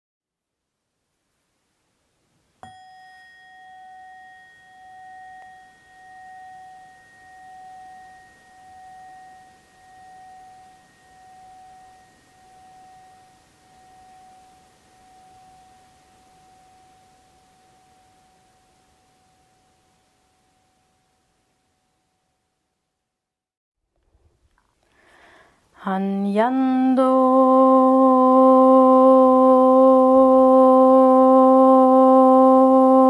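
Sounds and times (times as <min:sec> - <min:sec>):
metal bell-like tone ringing: 0:02.6 - 0:22.6.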